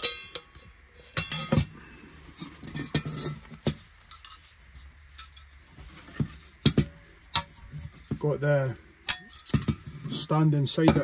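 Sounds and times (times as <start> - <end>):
metal cook pot clinking: 0.0 - 1.7, 2.3 - 4.5, 9.0 - 9.9.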